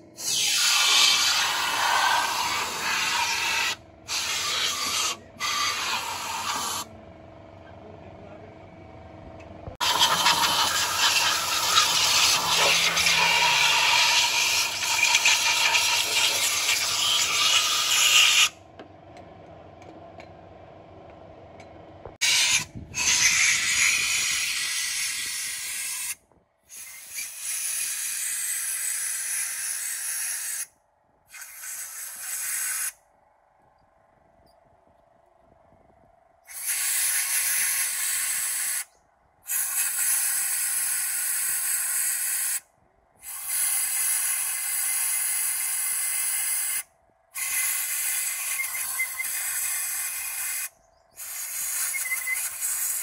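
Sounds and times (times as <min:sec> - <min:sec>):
compressed air blow gun hissing: 0:00.2 - 0:06.8, 0:22.3 - 0:30.7, 0:31.3 - 0:33.0, 0:36.5 - 0:38.9, 0:39.5 - 0:42.6, 0:43.2 - 0:45.9, 0:47.4 - 0:53.0.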